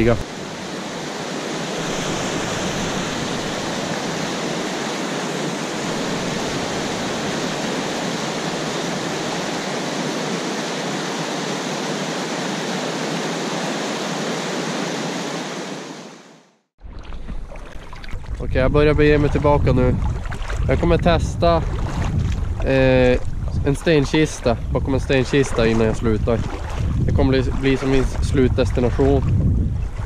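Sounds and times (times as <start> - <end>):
whitewater rushing over rocks: 0.0 - 15.9.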